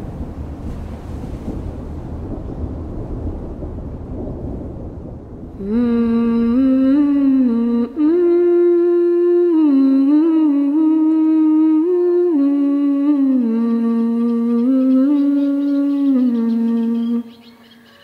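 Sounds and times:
person humming slow melody: 5.6 - 17.6.

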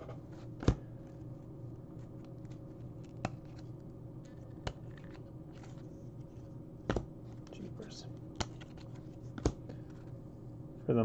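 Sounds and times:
faint low hum: 0.0 - 11.0
cards rustling by hand: 0.3 - 10.3
card edges clicking: 8.2 - 10.2.

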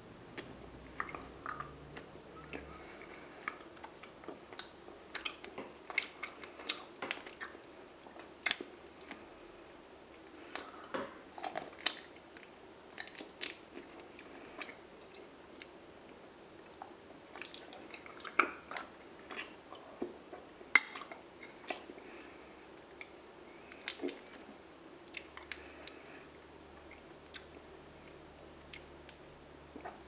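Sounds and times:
chewing honeycomb: 0.9 - 9.3, 10.2 - 20.2, 20.8 - 28.9
sticky mouth clicks and smacks: 8.4 - 9.2.

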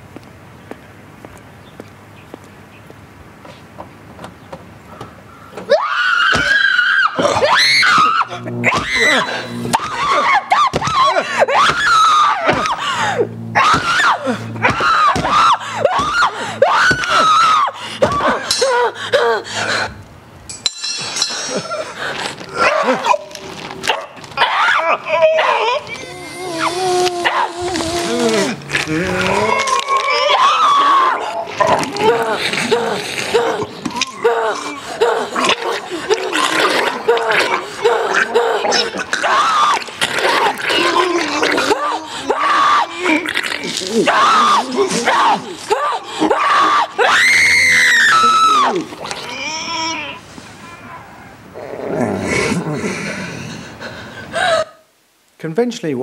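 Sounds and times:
woman screaming: 5.7 - 19.5, 24.4 - 51.0
voice crying out: 5.7 - 19.8, 24.4 - 52.7
man choking and gurgling: 31.3 - 45.7.

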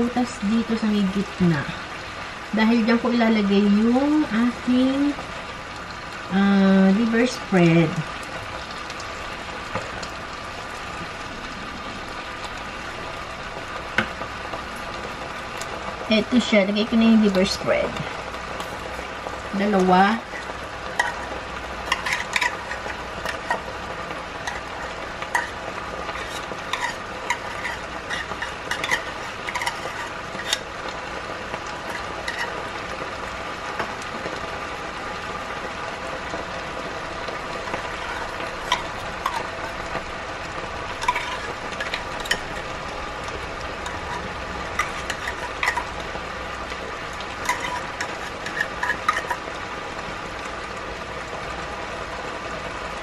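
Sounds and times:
food sizzling in a frying pan: 0.0 - 53.0
metal spoon scraping a tin can: 20.2 - 23.7, 24.4 - 30.7, 31.8 - 32.6, 37.7 - 39.8, 41.0 - 42.7, 43.8 - 46.0, 47.4 - 49.4.

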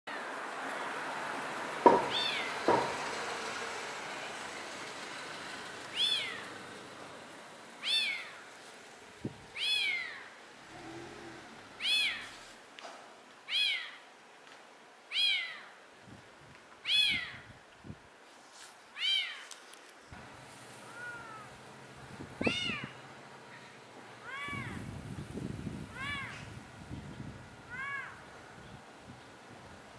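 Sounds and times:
cat meowing: 6.0 - 6.5, 7.8 - 8.4, 9.6 - 11.0, 11.8 - 12.4, 15.1 - 15.7, 16.9 - 17.4, 20.9 - 21.5, 22.4 - 23.0, 24.2 - 24.8, 25.9 - 26.4, 27.7 - 28.2.

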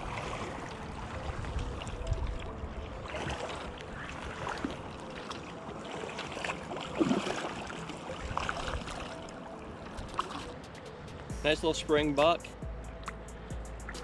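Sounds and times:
river water flowing: 0.0 - 14.0
fish thrashing and splashing: 3.2 - 9.3.

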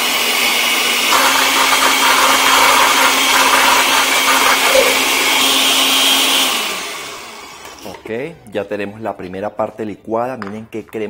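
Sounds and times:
blender motor running: 0.0 - 8.0.

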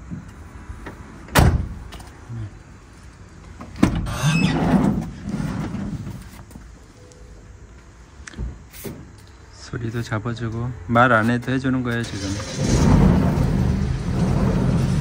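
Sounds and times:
van door slamming: 1.3 - 1.9, 3.8 - 4.2
sliding door rolling open: 3.8 - 6.2, 12.0 - 15.0.

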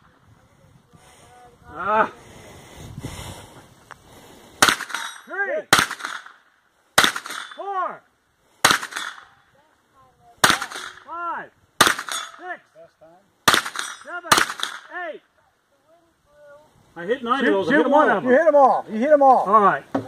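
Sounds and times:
bullet hitting steel target: 4.6 - 6.3, 7.0 - 7.6, 8.7 - 9.3, 11.8 - 12.4, 13.5 - 14.9
gunshots: 4.6 - 6.4, 7.0 - 7.6, 8.6 - 9.3, 10.4 - 11.1, 11.8 - 12.4, 13.4 - 14.9.

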